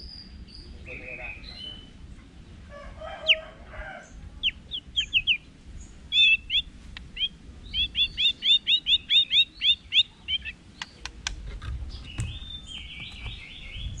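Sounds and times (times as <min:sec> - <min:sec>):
bird singing whistled notes: 0:00.0 - 0:02.0, 0:04.4 - 0:11.0, 0:11.9 - 0:14.0
bird clicks: 0:10.8 - 0:13.3.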